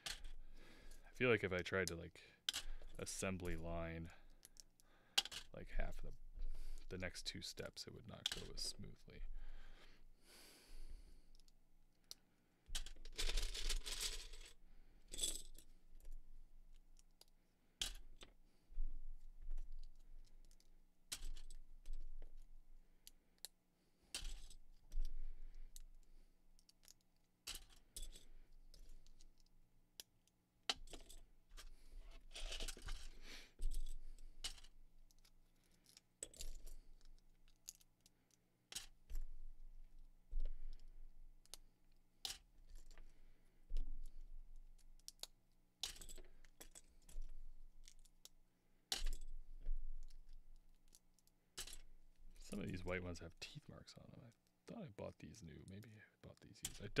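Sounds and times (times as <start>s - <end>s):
loose plastic pieces clattering: 12.7s - 15.6s, 32.2s - 38.1s, 45.0s - 48.1s.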